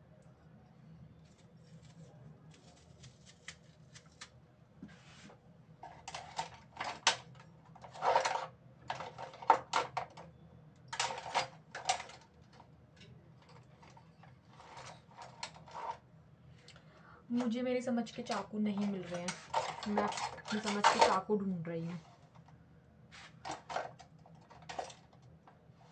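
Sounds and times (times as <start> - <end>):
low steady hum: 0.0 - 25.9
kitchen utensils clattering: 18.3 - 21.3.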